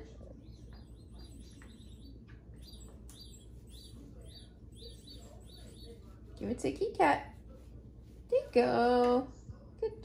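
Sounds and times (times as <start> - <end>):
low steady hum: 0.0 - 10.0
high-pitched bird chirps: 0.4 - 6.1.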